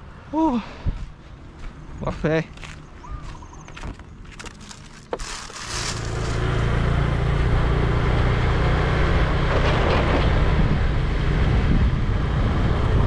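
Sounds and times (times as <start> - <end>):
motorbike engine hum: 2.6 - 13.0
wind noise: 9.2 - 13.0.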